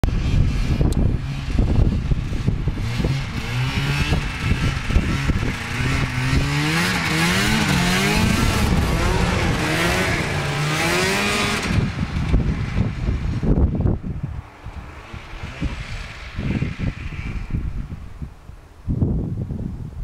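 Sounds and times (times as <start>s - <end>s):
snowmobile engine running: 0.0s - 14.1s
wind rumble on microphone: 0.0s - 20.0s.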